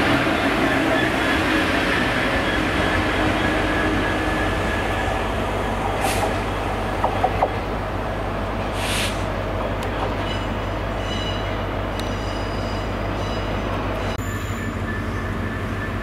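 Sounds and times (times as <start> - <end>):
diesel locomotive engine running: 0.0 - 12.1, 12.9 - 16.0
short hiss: 8.8 - 9.3.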